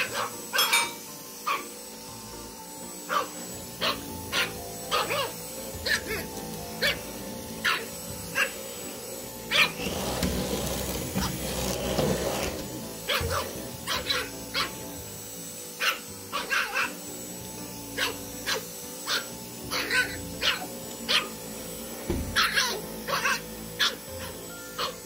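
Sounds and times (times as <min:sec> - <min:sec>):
background music: 0:00.0 - 0:25.0
puppy yapping: 0:01.4 - 0:01.7, 0:03.1 - 0:07.0, 0:07.6 - 0:08.6, 0:09.5 - 0:09.8, 0:13.1 - 0:14.7, 0:15.8 - 0:17.0, 0:18.0 - 0:21.3, 0:22.3 - 0:25.0.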